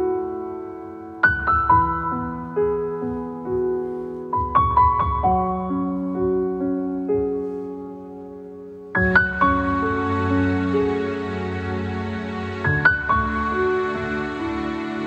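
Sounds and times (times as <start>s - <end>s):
gentle solo piano piece: 0.0s - 11.2s.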